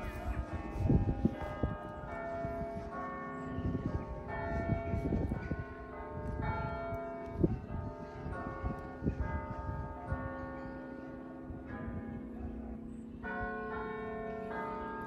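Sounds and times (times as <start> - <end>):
church bells ringing a carol: 0.0 - 15.0.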